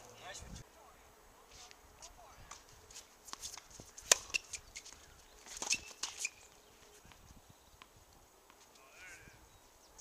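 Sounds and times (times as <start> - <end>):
tennis balls hit by rackets: 2.4 - 6.5
shoe squeaks: 3.4 - 4.9, 5.5 - 6.6.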